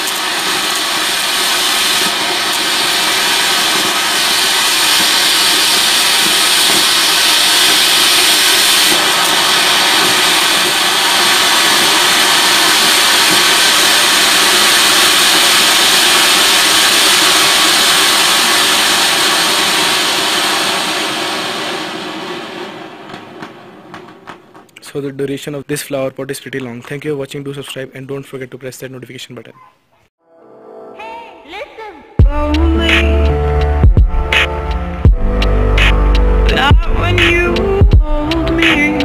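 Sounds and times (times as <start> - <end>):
fountain firework hissing: 0.0 - 24.4, 35.4 - 39.0.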